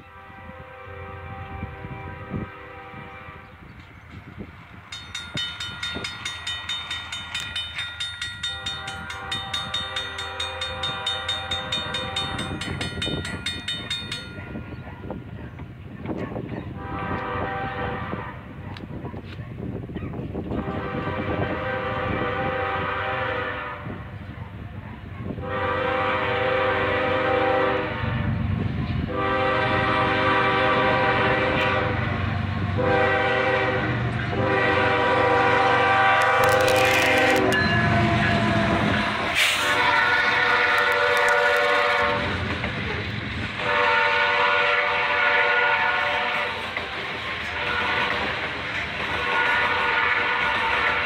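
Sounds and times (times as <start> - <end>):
locomotive air horn blasts: 0.0 - 3.7, 8.4 - 12.6, 16.7 - 18.5, 20.5 - 24.1, 25.4 - 28.4, 29.1 - 32.1, 32.8 - 42.4, 43.6 - 46.7, 47.5 - 48.3, 49.2 - 51.0
train wheels clattering on rails: 3.7 - 17.3, 36.1 - 51.0.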